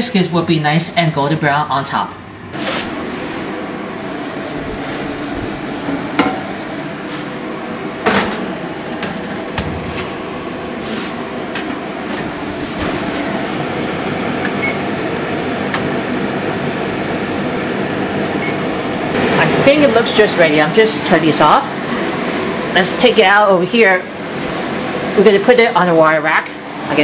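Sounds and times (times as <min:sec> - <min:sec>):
steady hum: 0:00.0 - 0:27.0
oven keypad beeps: 0:14.4 - 0:14.8, 0:18.3 - 0:18.6.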